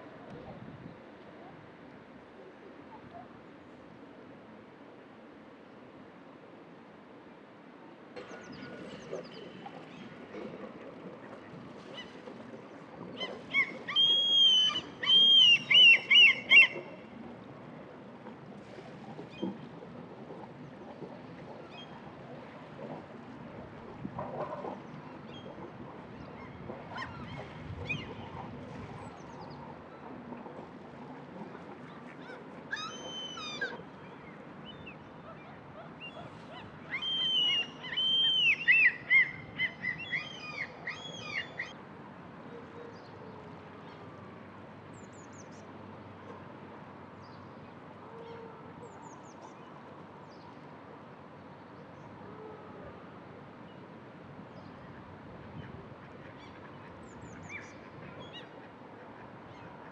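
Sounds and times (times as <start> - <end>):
gulls calling: 8.2 - 17.3, 24.4 - 30.6, 31.3 - 41.8.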